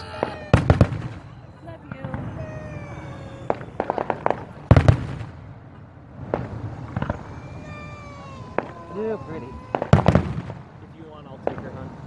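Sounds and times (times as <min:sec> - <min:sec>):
fireworks bursting: 0:00.0 - 0:12.0
fireworks crackling pops: 0:00.0 - 0:12.0
loud firework bang with rumble: 0:03.5 - 0:05.5, 0:09.6 - 0:10.7, 0:11.4 - 0:11.9.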